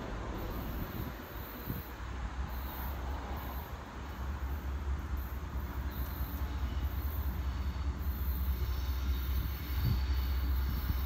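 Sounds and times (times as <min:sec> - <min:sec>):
distant diesel locomotive rumble: 0:00.0 - 0:11.0.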